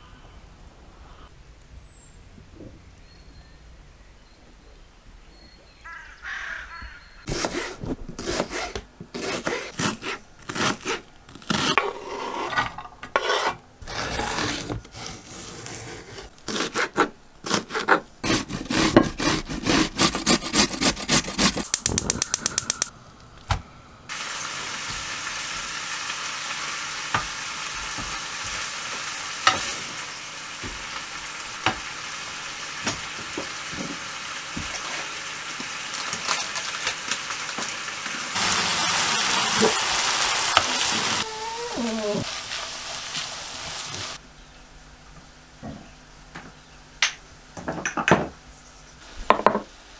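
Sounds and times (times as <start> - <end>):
quick clicks: 21.6 - 22.9
meat sizzling in a frying pan: 24.1 - 41.3, 42.2 - 44.2.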